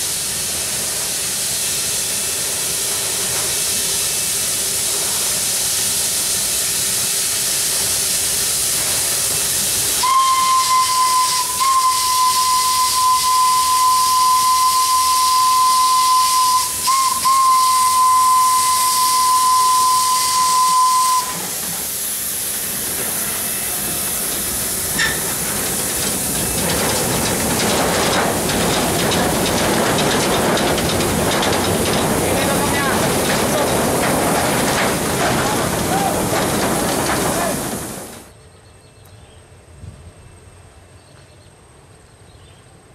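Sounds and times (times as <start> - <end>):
steam hissing: 0.0 - 38.3
train rattling past: 0.0 - 38.4
steam whistle blast: 10.0 - 21.5.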